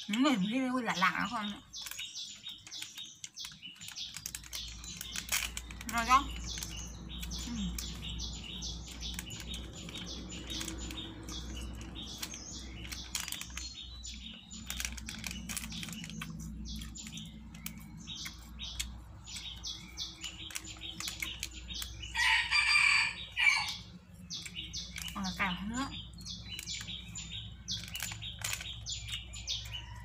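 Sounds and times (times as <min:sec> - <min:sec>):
small birds chirping: 0:00.0 - 0:30.0
rooster crowing: 0:22.2 - 0:23.8.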